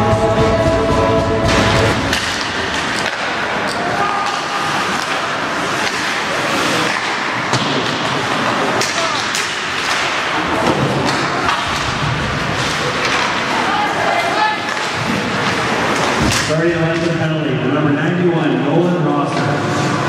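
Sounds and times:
puck and stick knocks: 0:01.5 - 0:13.5, 0:14.2 - 0:17.1
spectator chatter: 0:01.5 - 0:20.0.

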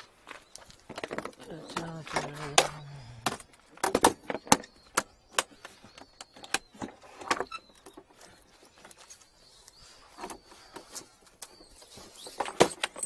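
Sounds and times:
low hum of a voice: 0:01.4 - 0:03.3.

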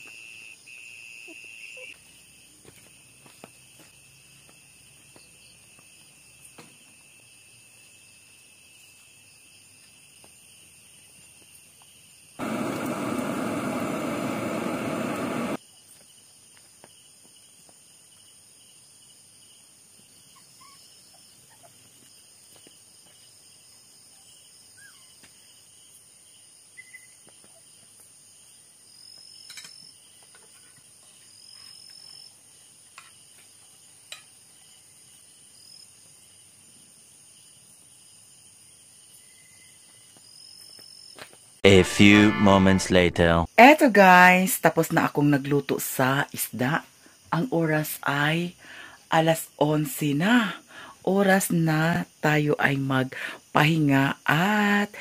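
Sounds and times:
night insects chorus: 0:00.0 - 0:41.5, 0:44.3 - 0:55.0
loud rushing hiss: 0:12.4 - 0:15.6.

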